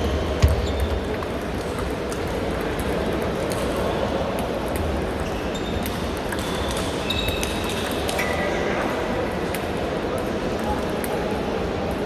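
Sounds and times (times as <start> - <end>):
din in sports hall: 0.0 - 12.0
table tennis balls clicking: 0.4 - 8.2.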